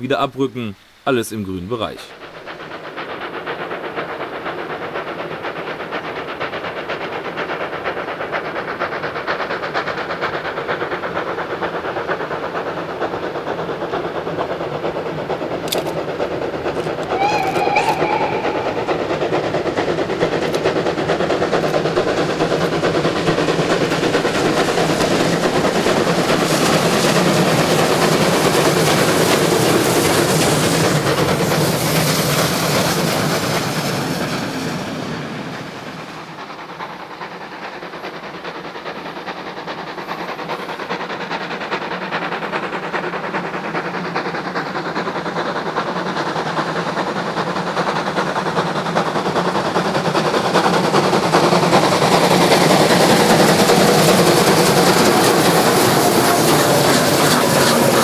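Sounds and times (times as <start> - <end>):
steam train exhaust chuffing: 0.0 - 58.0
wavering train whistle: 16.8 - 19.7.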